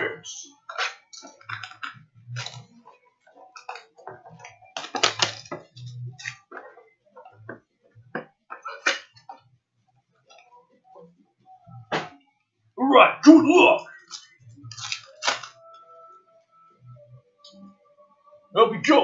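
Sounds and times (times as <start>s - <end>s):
card pack crinkling and rustling: 1.4s - 2.6s, 4.7s - 6.4s, 14.0s - 15.6s.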